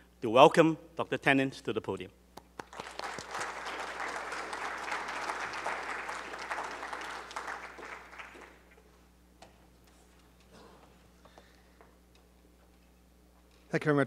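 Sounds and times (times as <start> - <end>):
audience applauding: 2.6 - 8.7.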